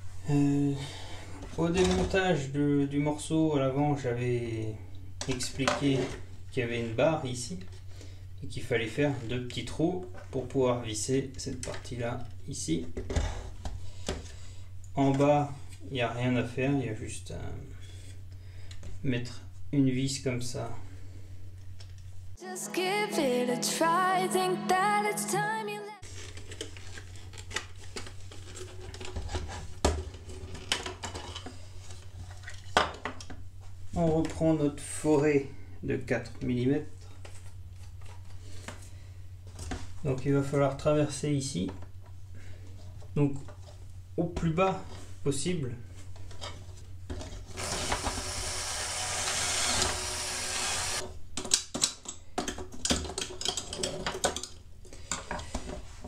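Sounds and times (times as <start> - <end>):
plastic parts clicking and knocking: 26.4 - 31.6, 51.0 - 55.8
cordless drill boring plastic: 47.6 - 51.0.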